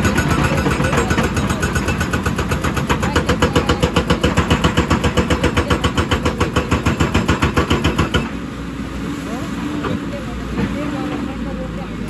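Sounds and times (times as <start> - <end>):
hydraulic breaker hammering rock: 0.0 - 8.4
diesel engine running: 0.0 - 12.0.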